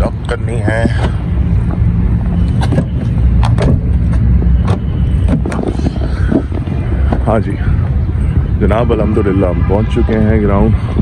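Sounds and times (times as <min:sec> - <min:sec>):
low rumble: 0:00.0 - 0:11.0.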